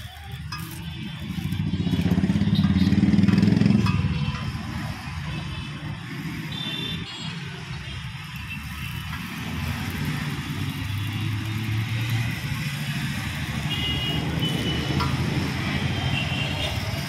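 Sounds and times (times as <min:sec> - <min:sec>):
motorcycle engine passing by: 0:01.6 - 0:03.9.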